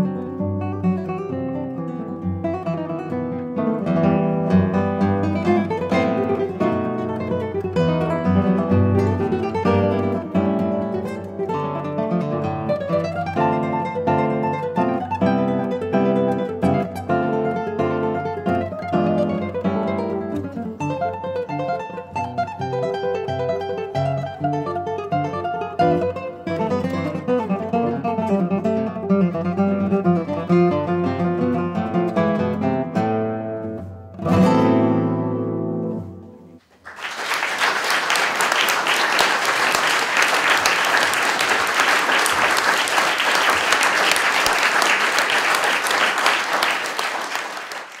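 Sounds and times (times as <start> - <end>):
classical guitars playing: 0.0 - 36.8
audience applauding: 36.6 - 48.0.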